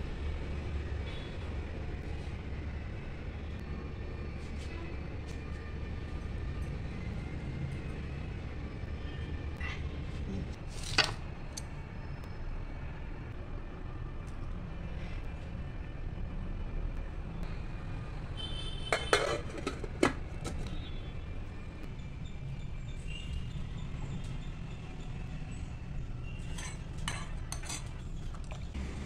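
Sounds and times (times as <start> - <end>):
steel pot and utensils clinking: 18.9 - 20.6, 26.4 - 28.6.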